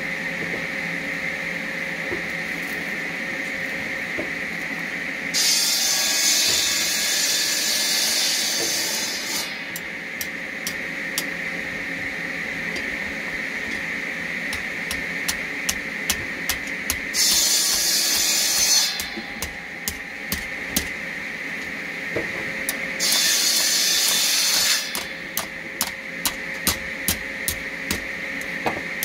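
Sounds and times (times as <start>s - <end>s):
steady high whine: 9.5s - 29.0s.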